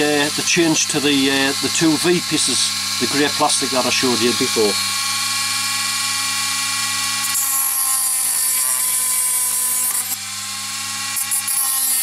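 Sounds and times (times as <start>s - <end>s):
disc cutting plastic: 0.0s - 4.8s, 7.2s - 10.2s
rotary tool motor whine: 0.0s - 12.0s.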